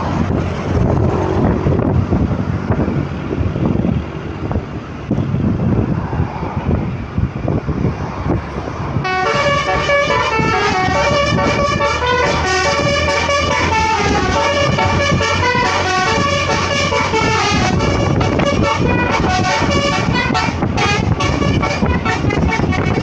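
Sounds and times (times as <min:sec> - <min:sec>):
road and wind noise: 0:00.0 - 0:23.0
bus horn playing multi-note tune: 0:09.0 - 0:23.0.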